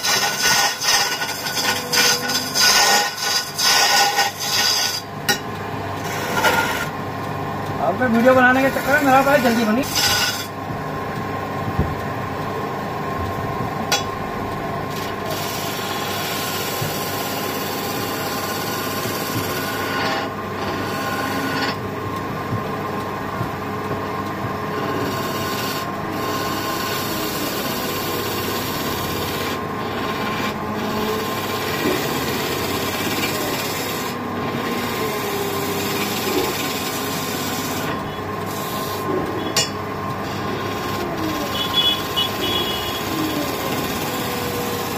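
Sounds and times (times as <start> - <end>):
chisel scraping wood: 0.0 - 5.1, 6.0 - 7.0, 8.1 - 10.6, 15.3 - 21.8, 24.8 - 39.0
wood lathe running: 0.0 - 10.7, 14.8 - 44.9.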